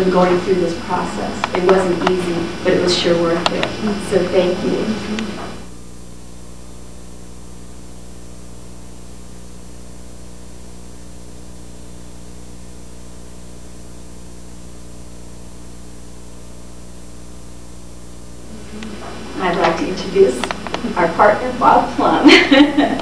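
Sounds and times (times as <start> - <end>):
electrical hum: 0.0 - 23.0.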